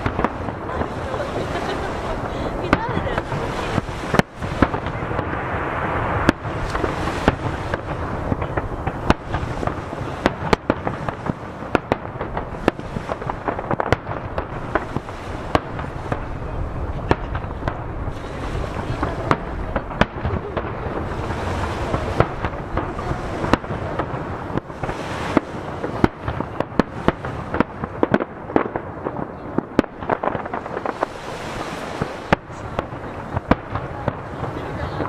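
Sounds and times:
firework shells bursting: 0:00.0 - 0:16.3
waves breaking: 0:00.0 - 0:35.0.

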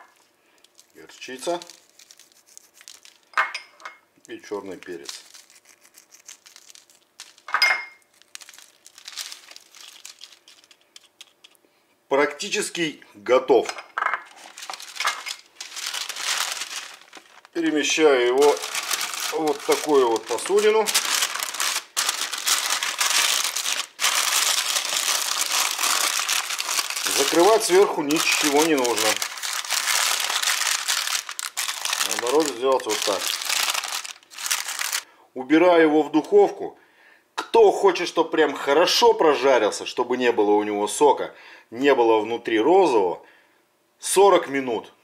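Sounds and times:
baking parchment crinkling: 0:00.0 - 0:03.3, 0:04.2 - 0:11.6, 0:14.3 - 0:35.1.

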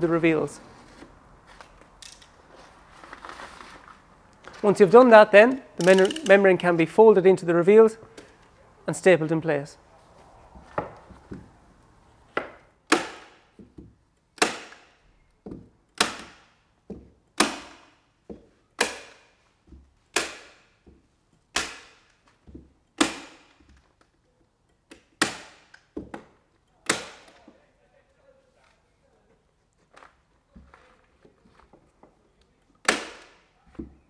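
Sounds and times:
staple gun snapping: 0:05.8 - 0:06.4.

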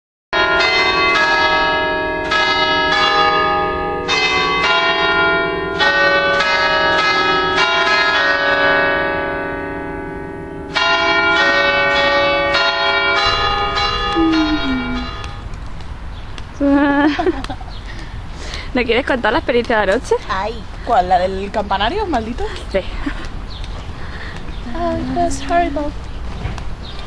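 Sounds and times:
church bells ringing: 0:00.4 - 0:15.6, 0:24.1 - 0:26.0.

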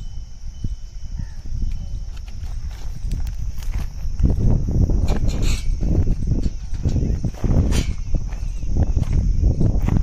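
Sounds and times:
steady high hiss: 0:00.0 - 0:09.8
constant low rumble: 0:00.0 - 0:10.0
footsteps walking: 0:02.1 - 0:10.0.

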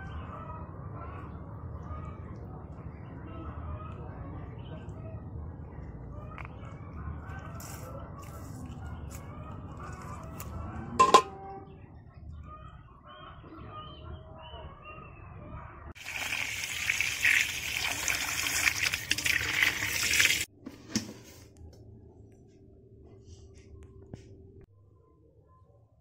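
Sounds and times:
water splashing into metal bowl: 0:16.0 - 0:20.5.

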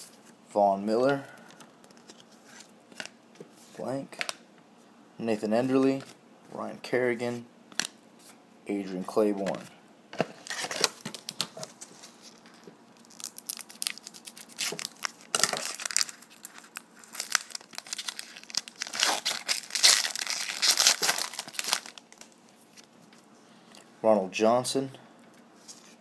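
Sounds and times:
foil wrapper crinkling and tearing: 0:10.4 - 0:22.9.

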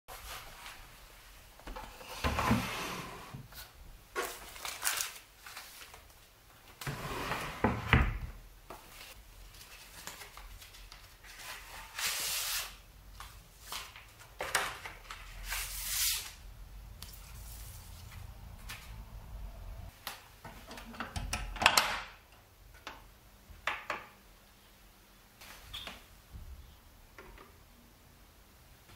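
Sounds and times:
drawer sliding on runners: 0:02.0 - 0:03.5, 0:06.8 - 0:08.3.

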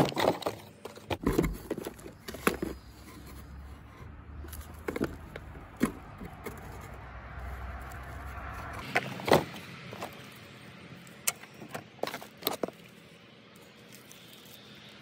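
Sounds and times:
rustling: 0:00.0 - 0:10.6.

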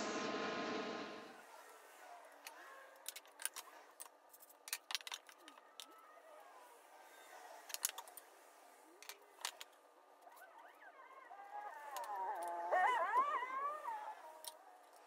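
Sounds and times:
metal and plywood clicks and taps: 0:02.4 - 0:06.0.

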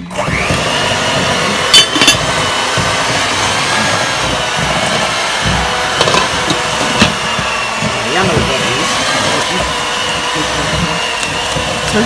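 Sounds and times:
small motor whirring: 0:00.0 - 0:12.0
metal pot lids clinking: 0:01.6 - 0:02.3.

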